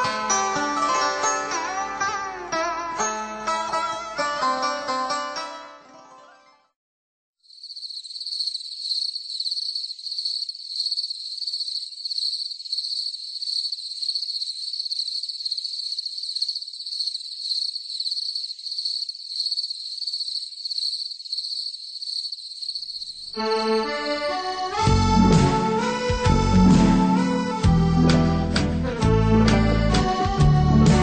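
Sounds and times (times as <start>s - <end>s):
insects trilling in chorus: 7.4s - 24.7s.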